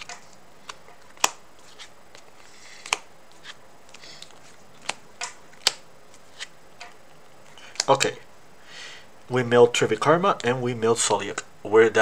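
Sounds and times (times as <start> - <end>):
cards sliding: 0.0 - 8.2.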